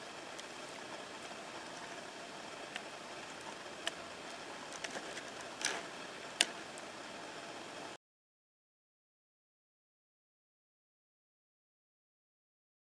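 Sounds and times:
steady hiss: 0.0 - 8.0.

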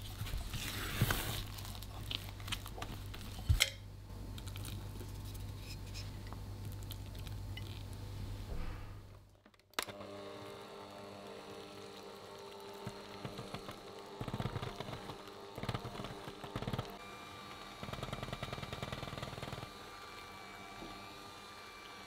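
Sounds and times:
electric hand mixer motor humming: 9.8 - 22.0.

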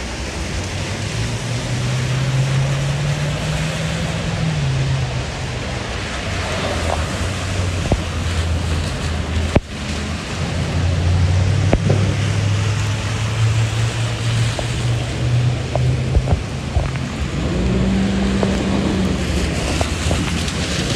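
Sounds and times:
engine hum of passing vehicles: 0.0 - 20.9
tyres hissing on wet pavement: 0.0 - 20.9.

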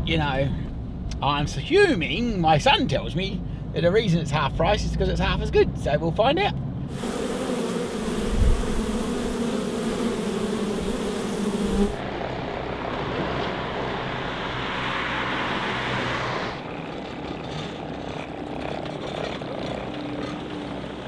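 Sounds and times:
honeybees buzzing: 6.9 - 16.6
steady rushing noise: 6.9 - 16.6.

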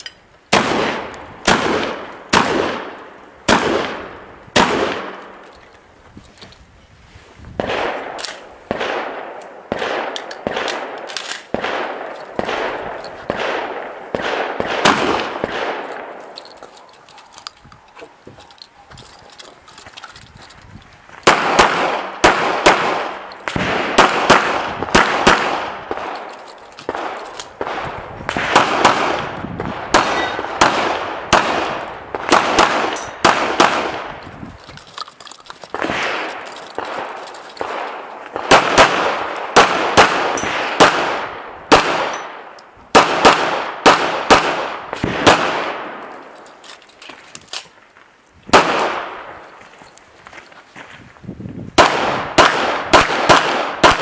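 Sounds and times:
rapid echoing gunshots: 0.5 - 5.2, 7.6 - 16.2, 21.2 - 26.2, 26.9 - 34.2, 35.7 - 46.0, 48.5 - 49.4, 51.8 - 54.0.

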